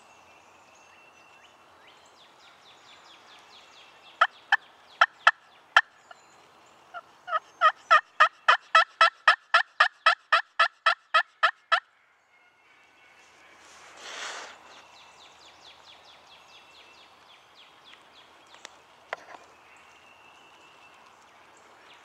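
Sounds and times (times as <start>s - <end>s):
turkey calls: 4.2s - 6.1s, 6.9s - 11.9s.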